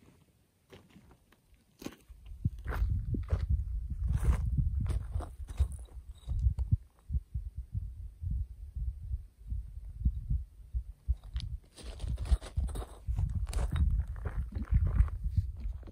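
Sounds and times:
wind buffeting microphone: 2.2 - 15.9
crunching scuffs: 11.6 - 14.5.

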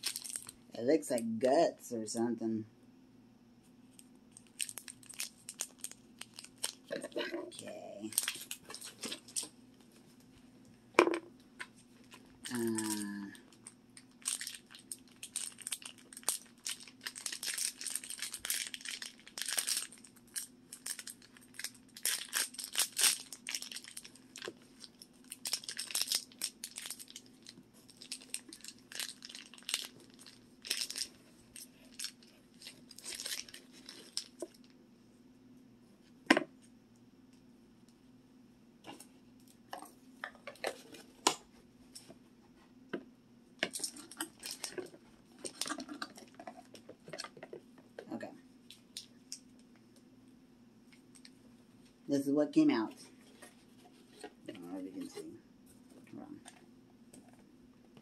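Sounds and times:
plastic wrapper crumpling and tearing: 0.0 - 0.6, 4.3 - 9.5, 11.7 - 34.8, 43.6 - 47.5
small handling sounds: 3.6 - 34.8, 38.8 - 50.1, 52.8 - 58.0.

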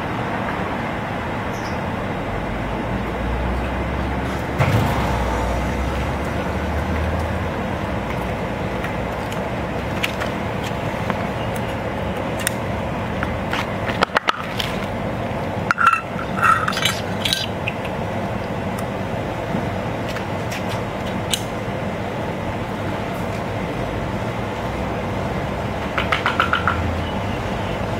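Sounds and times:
steady background noise: 0.0 - 27.9
can lid clinks and scrapes: 15.7 - 17.8.

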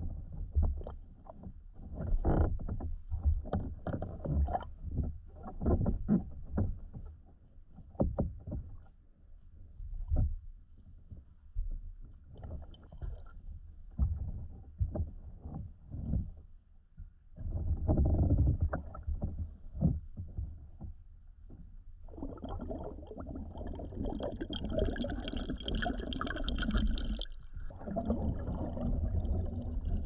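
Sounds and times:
muffled underwater sloshing: 17.4 - 30.0.

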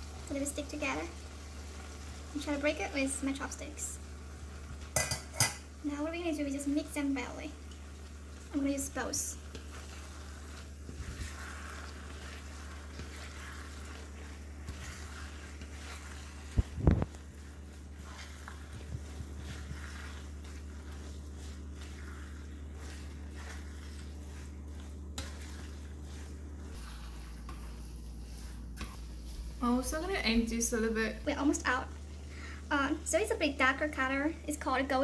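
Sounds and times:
noodles sizzling in a frying pan: 0.0 - 35.0
spatula scraping a pan: 4.6 - 5.6, 6.8 - 32.3.

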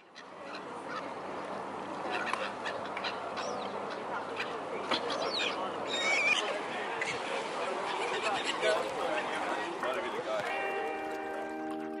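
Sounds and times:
background murmur: 0.0 - 12.0
waterfowl calls: 2.1 - 9.4.

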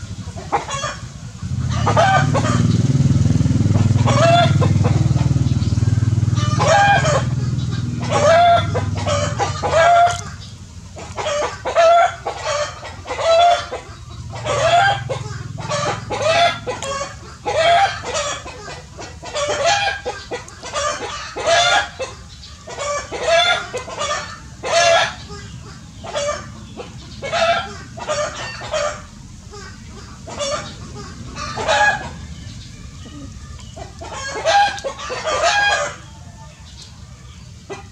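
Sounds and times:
low hum: 1.2 - 11.0.

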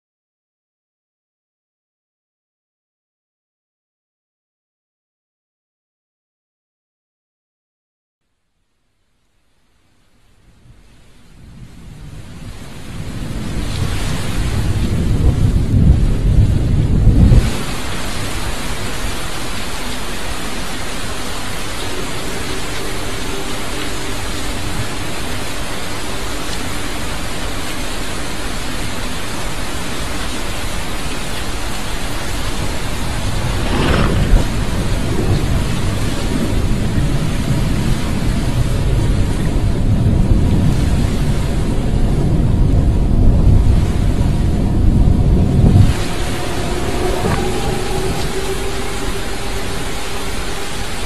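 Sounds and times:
heavy low rumble: 11.4 - 27.5, 31.7 - 51.0
dense hiss: 30.3 - 36.4
whoosh: 32.9 - 36.1.

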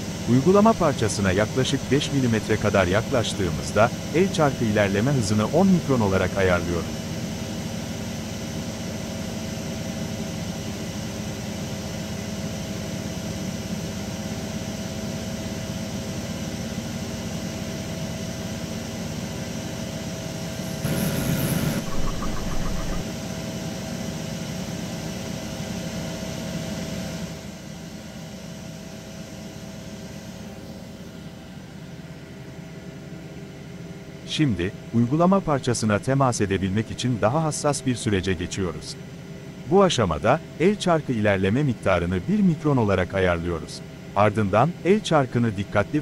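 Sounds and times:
lathe machine hum: 20.4 - 23.1.

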